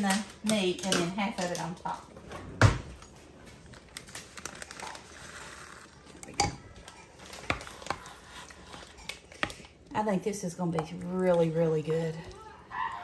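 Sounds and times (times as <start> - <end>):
plastic bag rustling and crinkling: 3.0 - 9.7.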